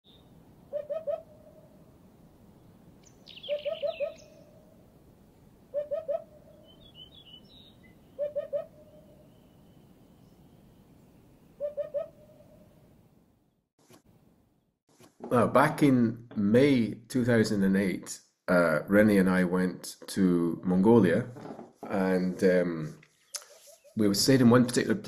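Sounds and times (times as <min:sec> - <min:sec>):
small birds chirping: 0:02.5 - 0:04.8, 0:05.7 - 0:12.4, 0:23.0 - 0:24.1.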